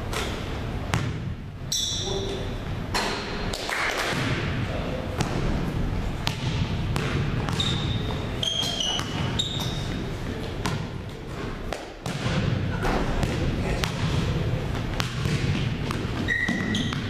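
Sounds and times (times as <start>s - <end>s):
basketballs bouncing on wood floor: 0.9s - 1.3s, 6.2s - 11.0s, 12.0s - 17.0s
sneaker squeaks: 1.7s - 3.3s, 7.0s - 10.9s, 15.2s - 17.0s.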